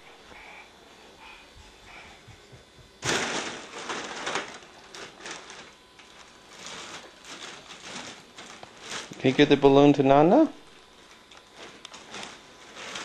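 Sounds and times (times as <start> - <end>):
foil balloon crinkling: 3.0 - 9.7, 11.0 - 13.0.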